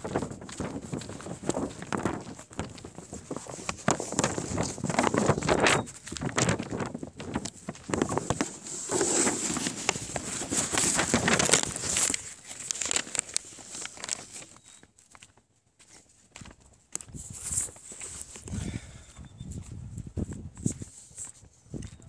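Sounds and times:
footsteps on sandy ground: 0.0 - 22.0
phone handling rustling: 7.4 - 14.6.

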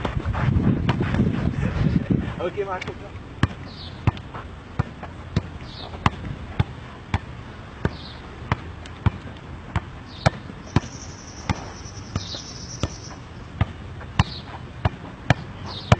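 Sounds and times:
football kicks: 4.8 - 15.9.

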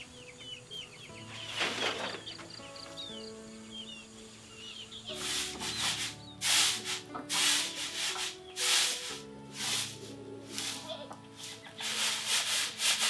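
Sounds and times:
rice rattling on a woven tray: 11.8 - 13.0.

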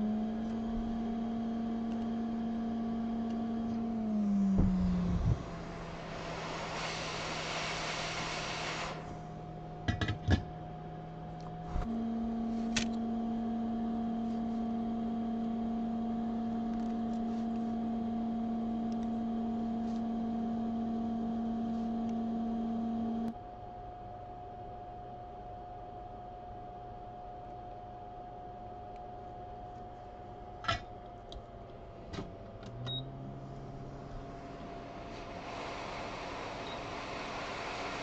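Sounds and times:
steady machine hum: 0.0 - 38.0
hot-air station blowing hiss: 4.8 - 9.4, 34.3 - 38.0.

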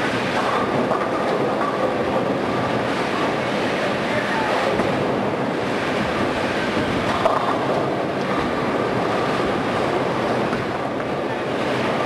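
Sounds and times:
bowling balls rolling: 0.0 - 12.0
bowling pins clattering: 0.2 - 3.4.

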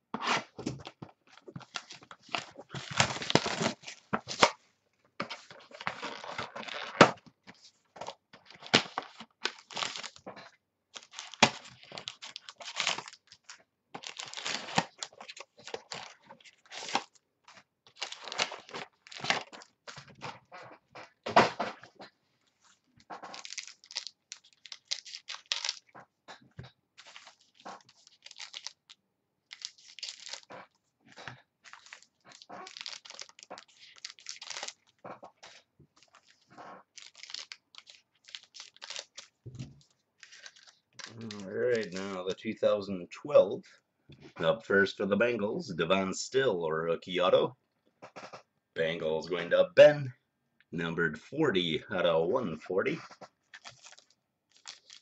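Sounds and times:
cards rustling and sliding: 27.0 - 28.8, 40.2 - 42.2.

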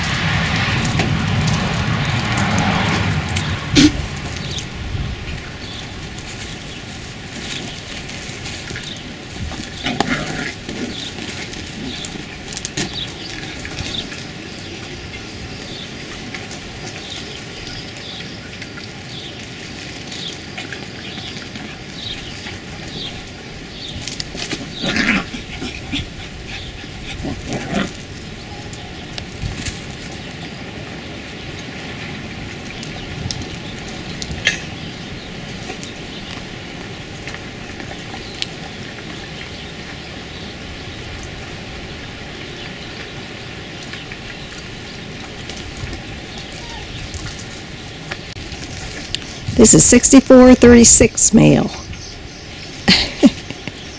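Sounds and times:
puppies yipping and whimpering: 46.3 - 47.6.

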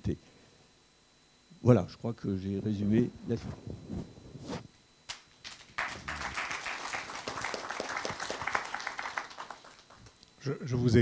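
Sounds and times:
audience applauding: 5.4 - 10.2.

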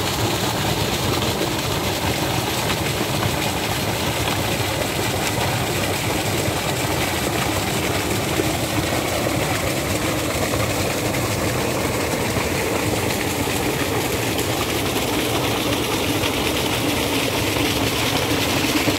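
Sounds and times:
water gushing from pipe: 0.0 - 18.9.

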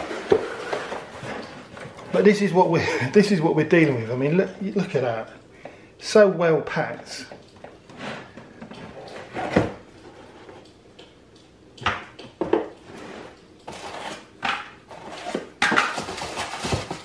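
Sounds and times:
box knocks and scrapes: 0.0 - 2.1, 14.9 - 17.0.

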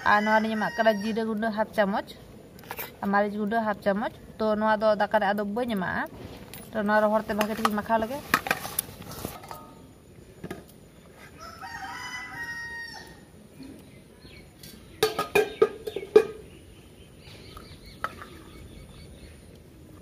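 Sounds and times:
rooster crowing: 0.0 - 1.2, 11.2 - 13.3
steel kitchen utensils clanking: 14.6 - 16.4.

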